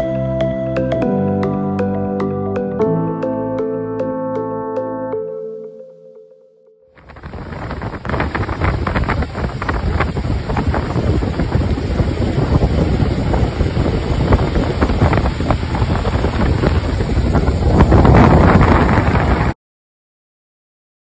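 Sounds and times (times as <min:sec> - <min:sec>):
rushing water and churning wake: 0:07.0 - 0:19.6
wind buffeting microphone: 0:07.0 - 0:19.6.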